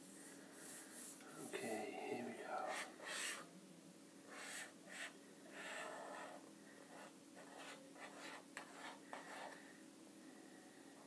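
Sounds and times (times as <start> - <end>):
marker scratching on paper: 2.7 - 3.4, 4.3 - 9.6.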